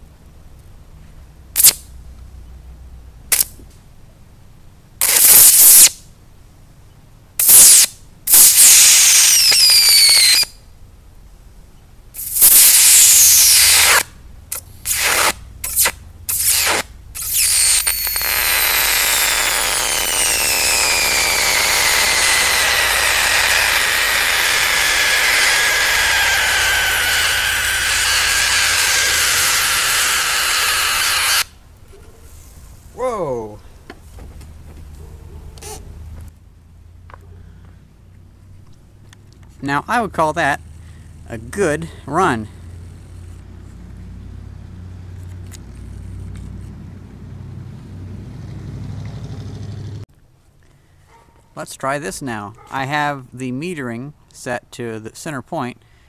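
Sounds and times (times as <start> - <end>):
electric arc crackling and hissing: 5.0 - 6.0, 7.4 - 10.5, 12.2 - 31.6.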